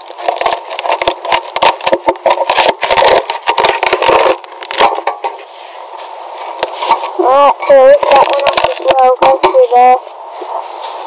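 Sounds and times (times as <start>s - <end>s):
fiberglass cracking and tearing: 0.0s - 5.3s, 6.6s - 9.6s.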